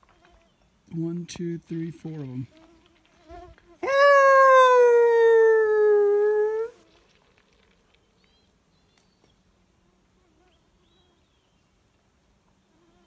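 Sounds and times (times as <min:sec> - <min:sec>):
man imitating wolf howl: 0:03.8 - 0:06.8.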